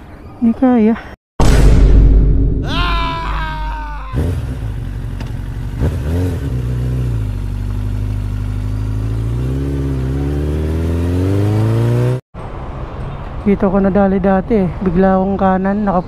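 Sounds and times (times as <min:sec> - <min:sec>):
motorcycle engine idling and revving: 0:04.1 - 0:12.2.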